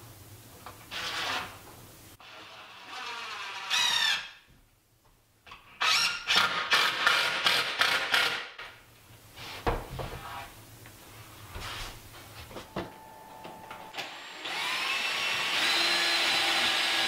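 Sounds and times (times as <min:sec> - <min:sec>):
cordless drill driving screws: 0:14.4 - 0:17.0.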